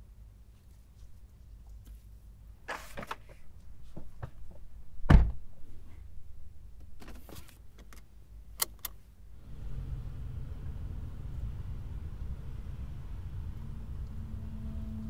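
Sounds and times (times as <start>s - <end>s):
car door thump: 5.1s - 5.4s
car engine and road noise: 7.8s - 15.0s.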